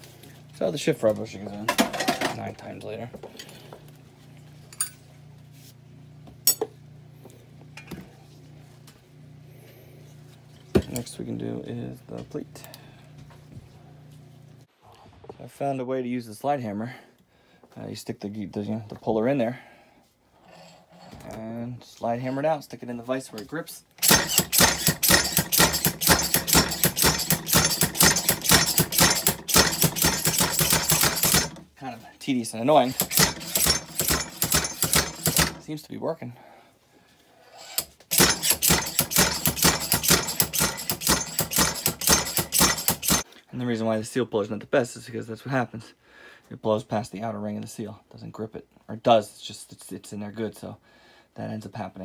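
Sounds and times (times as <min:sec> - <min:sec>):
steady low hum: 0:00.0 - 0:15.8
metal parts clinking: 0:24.0 - 0:31.6, 0:32.8 - 0:35.6, 0:37.6 - 0:43.2
slide hammer clacking: 0:24.0 - 0:31.6, 0:32.9 - 0:35.6, 0:37.7 - 0:43.2.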